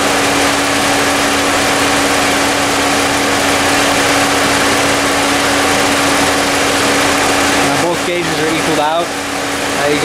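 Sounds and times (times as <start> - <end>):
air conditioning hum: 0.0 - 10.0.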